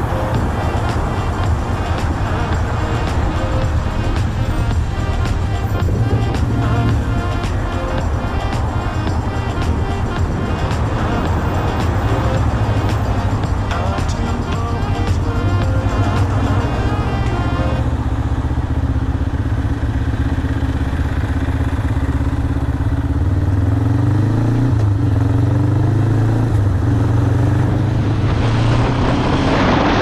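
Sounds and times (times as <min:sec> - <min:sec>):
wind on microphone: 0:00.0 - 0:16.4
background music: 0:00.0 - 0:18.3
motorcycle engine running: 0:00.0 - 0:29.3.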